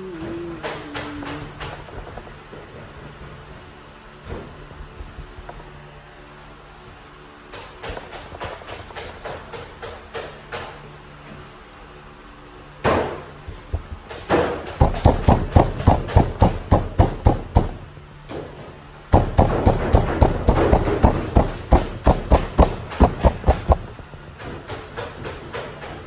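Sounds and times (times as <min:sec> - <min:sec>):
fist pounding dough: 0:12.9 - 0:17.9, 0:19.1 - 0:24.0.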